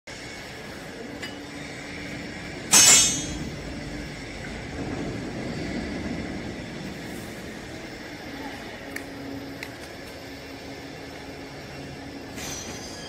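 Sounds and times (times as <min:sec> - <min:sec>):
baling press machine hum: 0:00.1 - 0:13.0
metallic screech and clink: 0:12.3 - 0:13.0.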